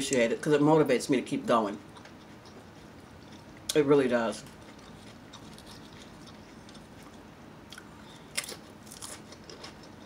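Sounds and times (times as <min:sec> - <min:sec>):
potato chips crunching: 0:03.2 - 0:10.0.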